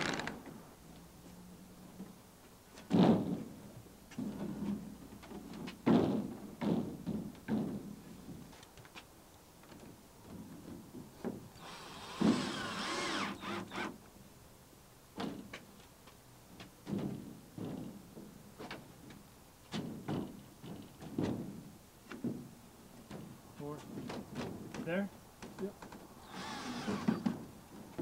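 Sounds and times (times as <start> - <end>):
knocks and clunks of panels: 2.8 - 8.4, 16.8 - 18.9, 19.7 - 28.0
cordless drill driving screw: 11.6 - 13.9, 26.2 - 27.3.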